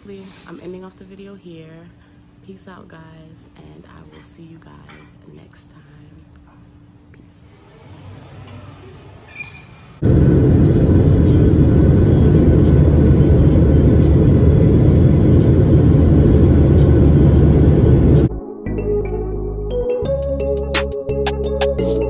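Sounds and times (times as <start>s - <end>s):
jet cabin roar in flight: 10.0s - 18.3s.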